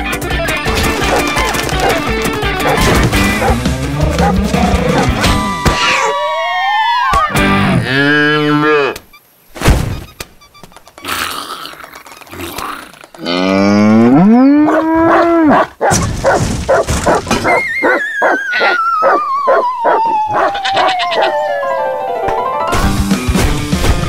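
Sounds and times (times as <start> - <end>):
dog howling: 3.4 - 7.4, 14.4 - 15.7, 17.5 - 21.6.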